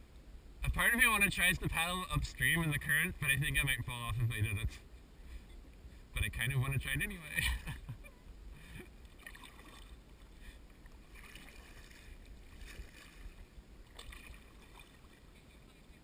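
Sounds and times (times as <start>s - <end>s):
paddle splashing in water: 9.0s - 16.0s.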